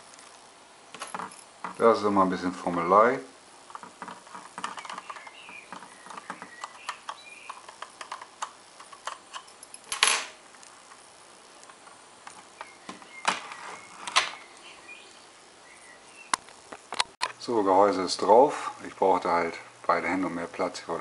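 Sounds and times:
small plastic clicks and scrapes: 0:03.7 - 0:09.5.

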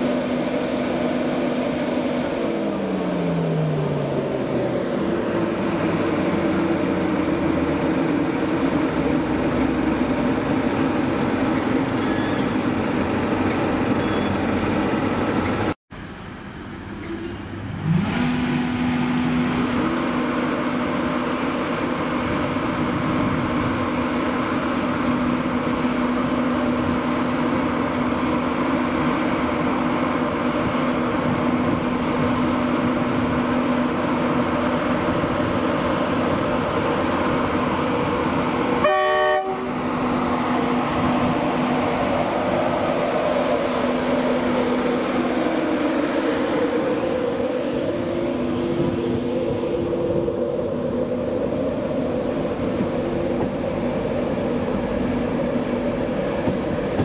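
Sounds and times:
blower whine rising: 0:00.0 - 0:15.8, 0:39.7 - 0:57.0
electric locomotive humming: 0:00.0 - 0:57.0.

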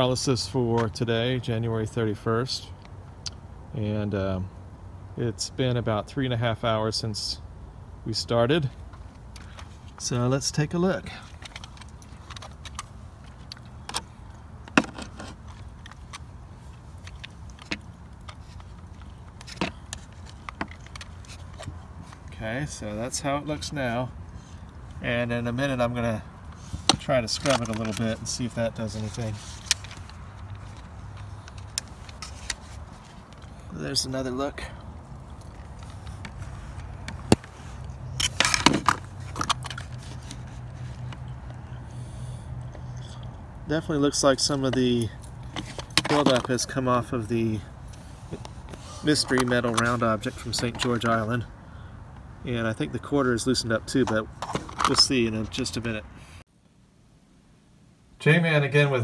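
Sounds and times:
objects clicking and scraping: 0:11.1 - 0:22.3, 0:26.5 - 0:33.6, 0:35.3 - 0:41.6, 0:44.7 - 0:46.8, 0:47.9 - 0:51.3, 0:53.9 - 0:55.2.

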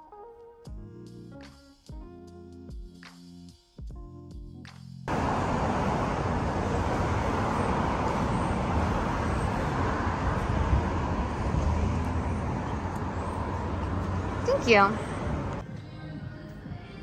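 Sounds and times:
street traffic noise: 0:05.1 - 0:15.9.

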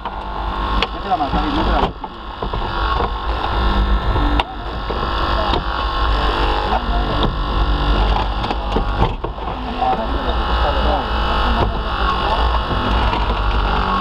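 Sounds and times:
hydraulic power unit running: 0:00.0 - 0:14.0
sharp knocks: 0:00.8 - 0:03.6, 0:06.6 - 0:10.1.

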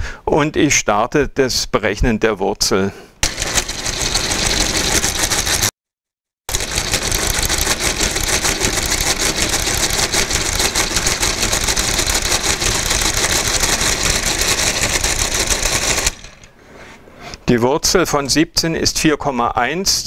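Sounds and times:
mechanical calculator clattering: 0:03.2 - 0:05.7, 0:06.5 - 0:16.5.

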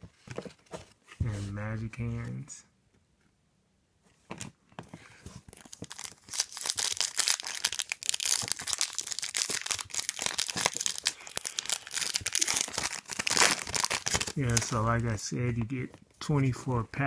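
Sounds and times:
foil wrapper crinkling and tearing: 0:05.5 - 0:14.8.

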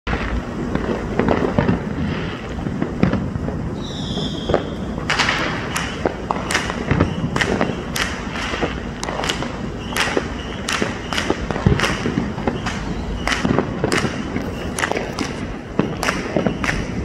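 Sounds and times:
fireworks popping and banging: 0:00.1 - 0:17.0
high firework whistle: 0:03.7 - 0:17.0.

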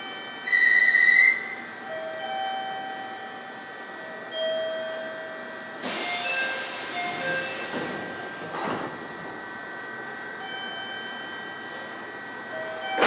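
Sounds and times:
air hiss of train doors: 0:05.8 - 0:09.0
doors shutting with thud: 0:07.1 - 0:09.0
door chime tones: 0:10.4 - 0:11.8, 0:12.5 - 0:13.0.

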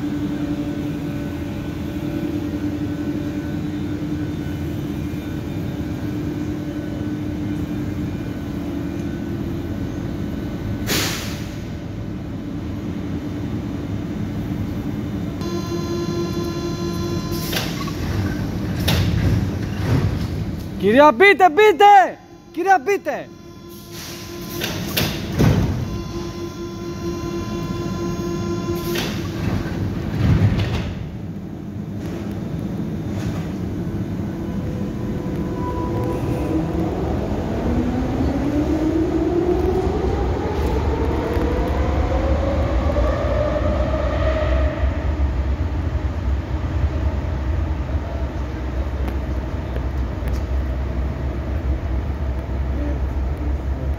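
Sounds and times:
train equipment hum and rumble: 0:00.0 - 0:53.9
air release hiss: 0:10.8 - 0:11.7
door warning beeps: 0:15.4 - 0:18.4, 0:23.2 - 0:29.6
sliding doors thudding shut: 0:17.3 - 0:20.6, 0:23.9 - 0:26.0, 0:28.8 - 0:31.2.

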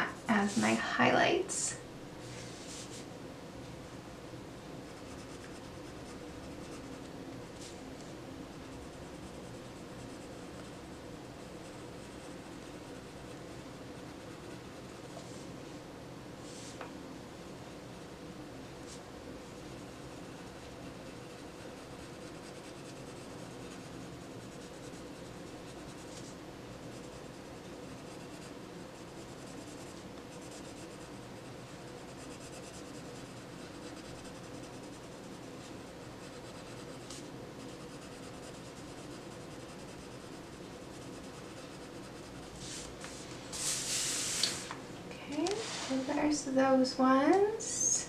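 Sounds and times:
pencil rubbing on paper: 0:04.9 - 0:07.0, 0:19.7 - 0:44.6.

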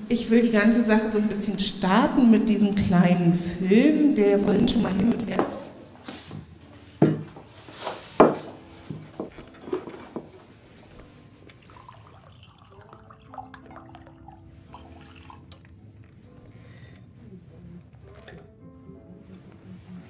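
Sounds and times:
wine trickling into a glass: 0:11.4 - 0:15.7.

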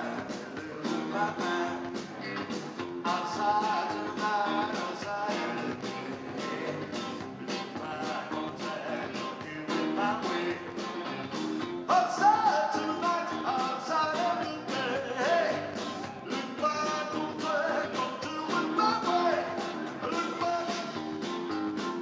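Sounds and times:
man singing lead vocal: 0:00.0 - 0:11.1, 0:11.8 - 0:21.2
live rock band playing: 0:00.0 - 0:22.0.

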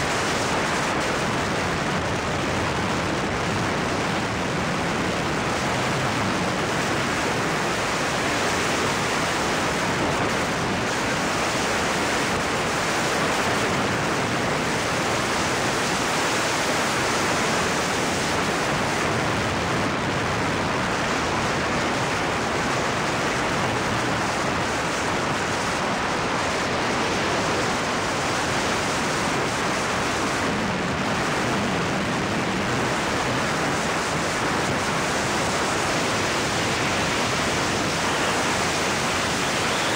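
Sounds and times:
wind buffeting microphone: 0:00.0 - 0:39.9.

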